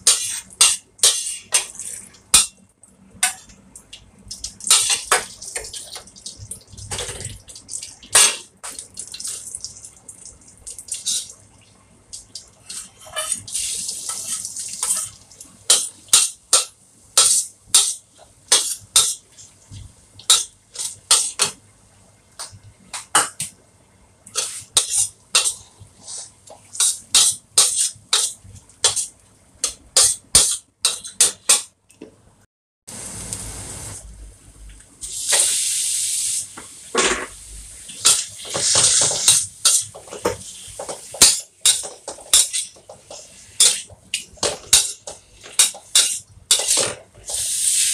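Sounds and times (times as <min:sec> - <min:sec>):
metal spatula scraping a wok: 0:00.0 - 0:02.5, 0:12.7 - 0:13.5, 0:14.1 - 0:19.2, 0:24.3 - 0:31.6, 0:38.0 - 0:47.9
garlic sizzling in hot oil: 0:12.6 - 0:19.2, 0:35.0 - 0:36.6, 0:37.3 - 0:47.9.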